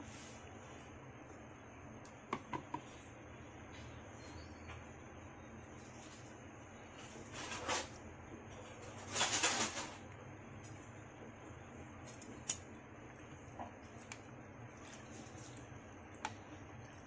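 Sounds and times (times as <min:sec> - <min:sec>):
steady low hum: 0:00.0 - 0:17.0
noisy rustle: 0:05.7 - 0:11.0
metal tongs clicking on pot: 0:12.4 - 0:12.6.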